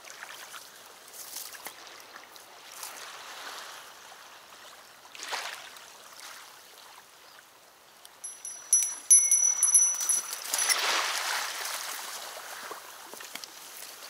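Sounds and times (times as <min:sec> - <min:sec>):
bite indicator ringing: 0:08.2 - 0:10.9.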